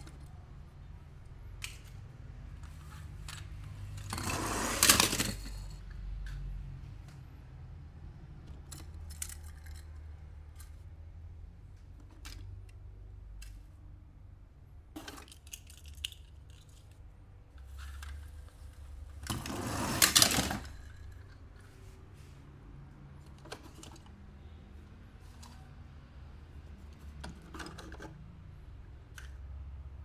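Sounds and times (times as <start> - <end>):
light clicks of plastic toys: 1.6 - 4.1, 8.4 - 11.0, 11.7 - 13.8, 15.0 - 19.2, 29.0 - 29.6
toys clattering rattle: 3.2 - 5.8, 8.6 - 10.8, 15.0 - 17.0, 17.6 - 21.5.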